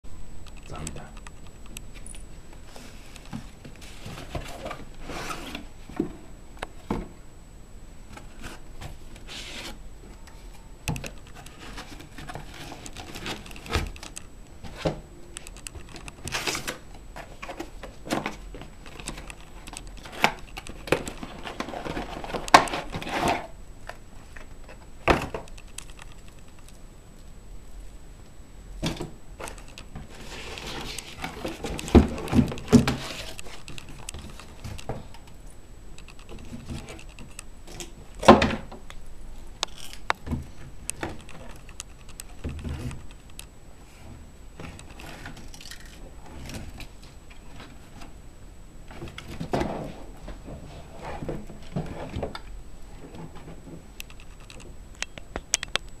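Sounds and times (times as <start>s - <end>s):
cables and connectors clicking: 15.3s - 16.8s, 23.9s - 27.3s, 29.4s - 43.6s, 54.0s - 56.0s.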